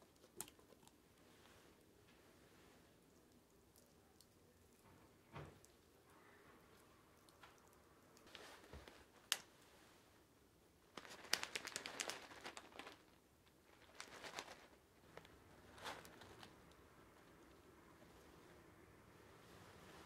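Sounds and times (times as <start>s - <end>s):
plastic bag crinkling: 10.9s - 16.7s.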